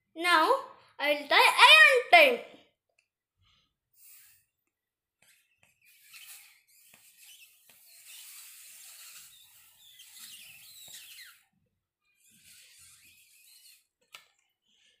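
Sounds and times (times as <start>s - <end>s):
breath blown into balloon: 3.5s - 4.6s, 5.2s - 11.4s, 12.2s - 13.9s
balloon squeaks: 5.3s - 14.3s.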